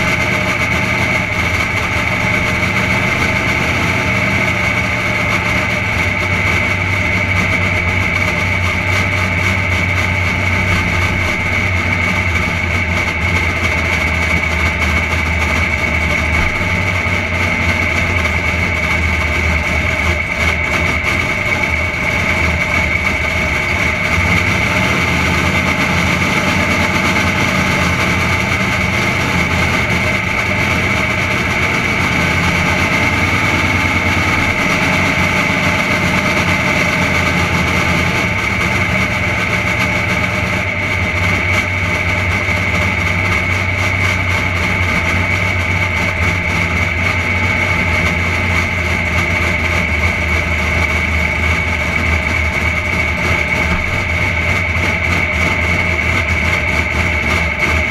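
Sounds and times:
car engine running at low revs: 0.0s - 57.9s
steady high whine: 0.0s - 57.9s.

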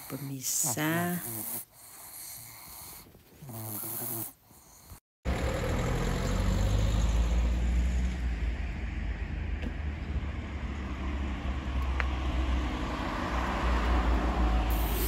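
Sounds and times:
city street traffic rumble: 5.3s - 15.0s.

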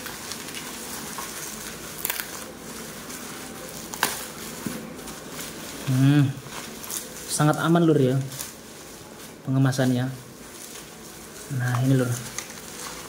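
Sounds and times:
bubble wrap and plastic rustling: 0.0s - 13.0s
sharp crackles: 0.0s - 13.0s.

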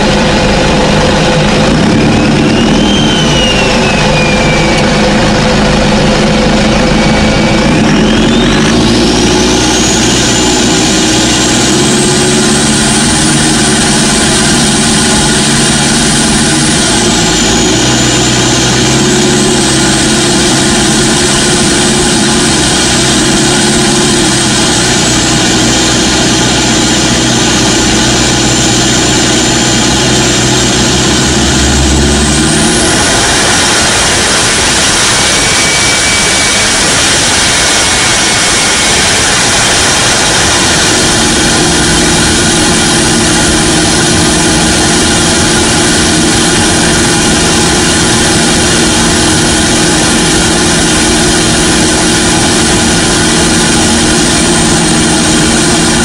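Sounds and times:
diesel engine accelerating: 0.0s - 56.0s
high turbo whistle: 0.0s - 56.0s.

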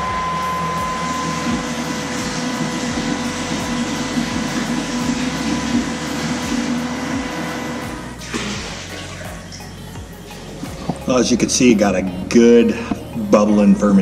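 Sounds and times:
small pump running: 0.0s - 9.5s
liquid splashing into bucket: 8.2s - 9.7s.

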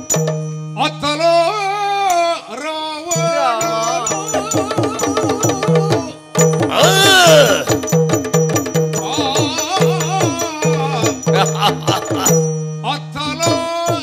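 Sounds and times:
person singing: 0.8s - 7.8s, 9.0s - 14.0s
drum strokes: 3.2s - 12.6s.

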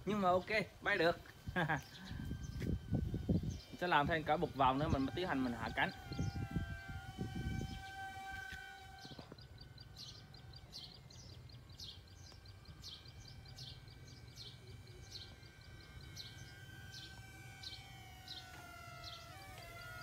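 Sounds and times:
model plane motor whine: 0.0s - 20.0s
bird chirping: 1.6s - 20.0s.

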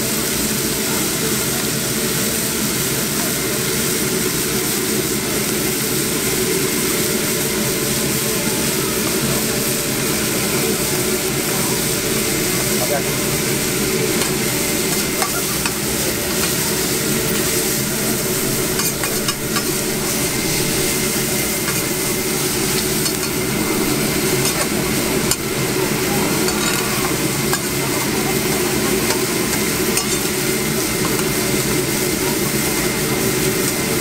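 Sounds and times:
food sizzling on a griddle: 0.0s - 34.0s
metal spatula scraping and tapping: 14.2s - 16.6s, 18.7s - 19.8s, 21.6s - 21.9s, 22.7s - 23.4s, 24.4s - 24.7s, 26.5s - 27.7s, 29.1s - 30.4s.

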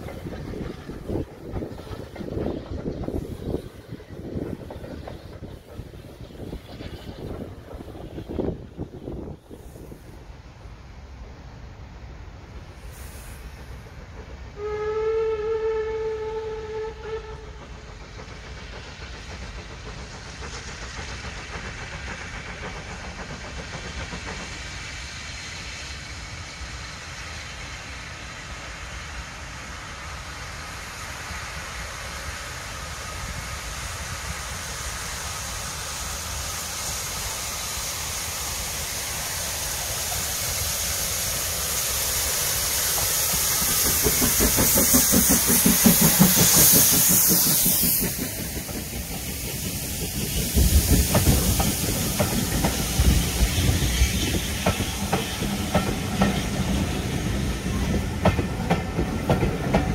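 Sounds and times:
steam hissing: 0.0s - 59.9s
steam locomotive approaching: 0.0s - 59.9s.

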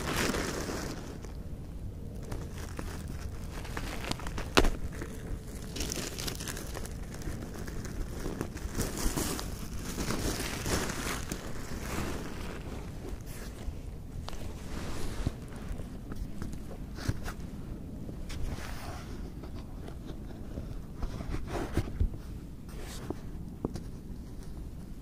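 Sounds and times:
material rustling and crinkling: 0.0s - 1.4s, 2.1s - 25.0s.

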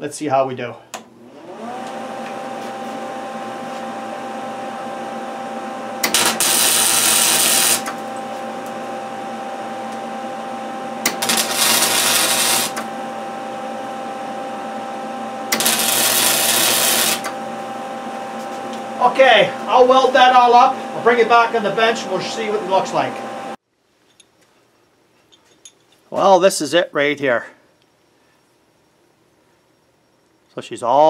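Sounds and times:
welder humming: 0.9s - 23.6s
tack welds crackling: 6.0s - 8.1s, 11.0s - 12.9s, 15.5s - 17.3s.

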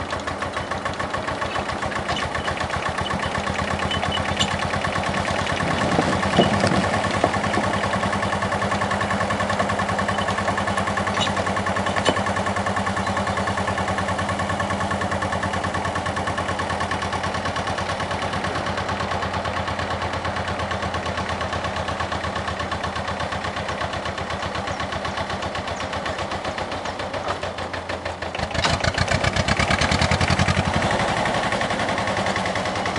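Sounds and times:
tractor diesel engine: 0.0s - 32.9s
metal clanks: 0.6s - 4.7s, 5.4s - 8.1s, 9.4s - 13.3s.

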